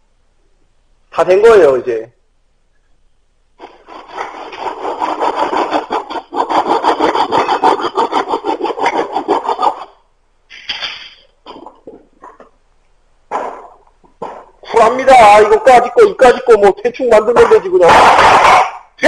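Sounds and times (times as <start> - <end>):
hand saw cutting wood: 3.6 - 9.9.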